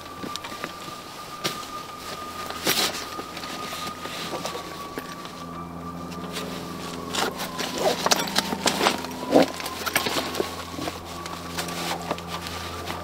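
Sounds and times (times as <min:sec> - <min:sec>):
faint steady hum: 0:00.0 - 0:13.0
webbing straps being pulled: 0:06.2 - 0:13.0
buckles clicking and knocking: 0:07.1 - 0:12.9.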